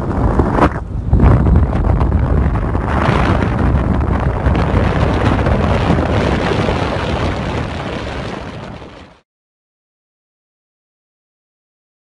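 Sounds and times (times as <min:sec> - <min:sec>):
road noise: 0:00.0 - 0:09.2
wind buffeting microphone: 0:00.0 - 0:09.2.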